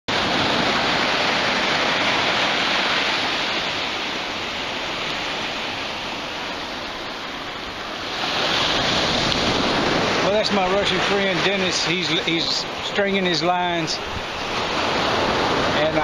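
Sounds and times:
small waves washing up a sandy shore: 0.1 - 16.0.

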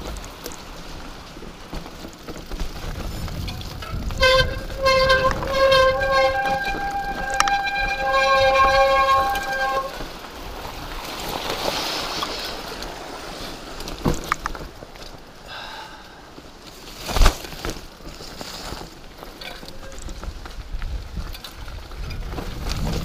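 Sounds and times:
tyres rolling on rocky dirt: 0.0 - 23.0
wind rushing on microphone: 2.7 - 11.0, 20.1 - 23.0
bike disc brakes squealing: 3.0 - 10.0.

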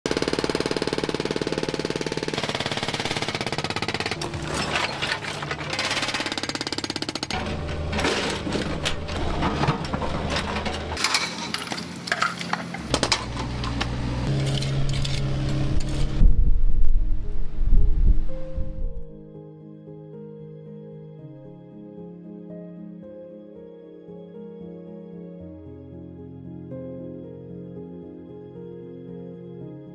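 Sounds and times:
hydraulic breaker hammering concrete: 0.1 - 4.5, 5.6 - 11.0
excavator engine running: 0.1 - 16.2
bucket scraping soil and rubble: 4.2 - 6.3, 7.3 - 13.4.

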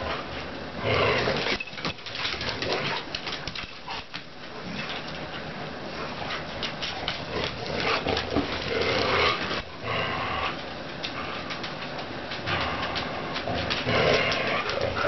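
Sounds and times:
dogs scuffling: 0.4 - 15.0
dog vocal noises: 5.9 - 11.6.

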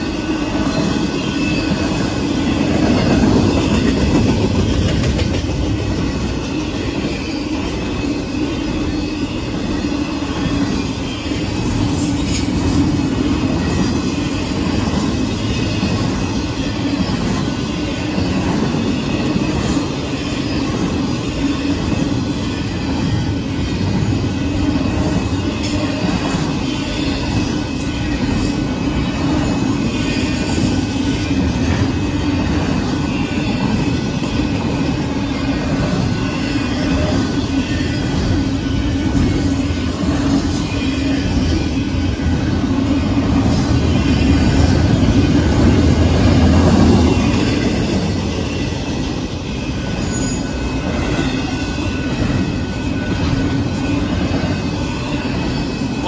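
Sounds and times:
freight train wheels rumbling on rails: 0.0 - 56.0
high-pitched wheel squeal: 46.9 - 56.0.

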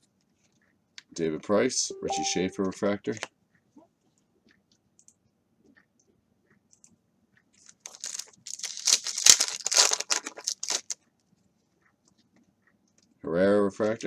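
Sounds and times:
foil wrapper tearing and crinkling: 7.8 - 11.0.

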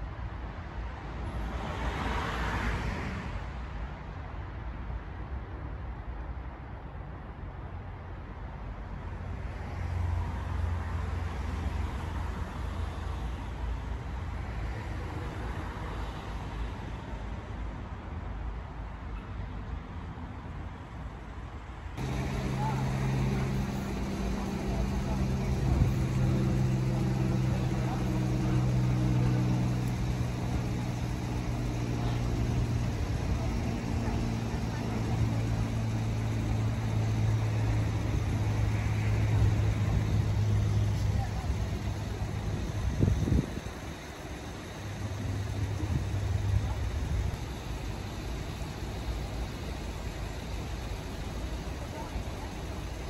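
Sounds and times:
vehicle engine rumble: 22.0 - 53.0.

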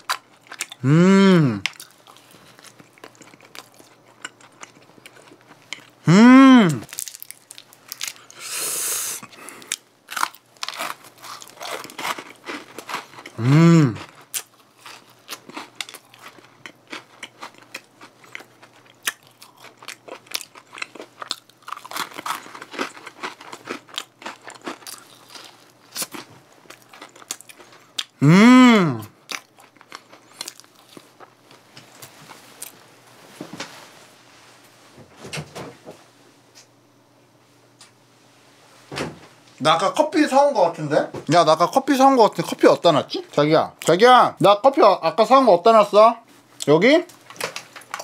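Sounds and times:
crunchy chewing: 0.0 - 6.0, 9.2 - 28.2, 29.0 - 32.8
person humming mmm: 0.8 - 1.7, 6.0 - 6.9, 13.4 - 14.1, 28.2 - 29.1.

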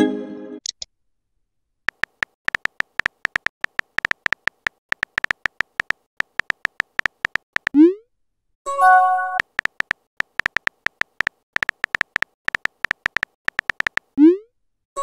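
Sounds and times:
synthetic keyboard clicks: 1.9 - 7.9, 9.3 - 14.4.

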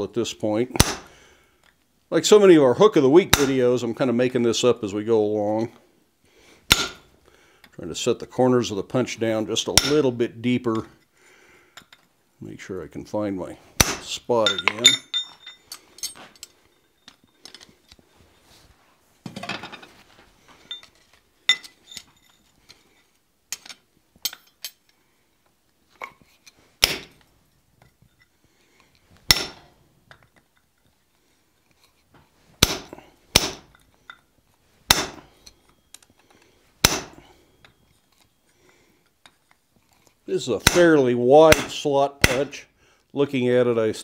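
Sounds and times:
metal tools clinking: 14.3 - 18.0, 19.4 - 25.0, 27.5 - 28.4, 33.6 - 34.3, 35.2 - 40.2.

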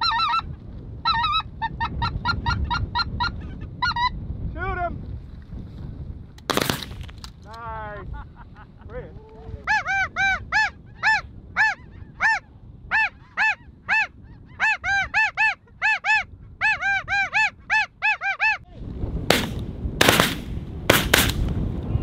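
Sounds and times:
sharp loud bangs: 6.5 - 7.2, 19.3 - 21.5.

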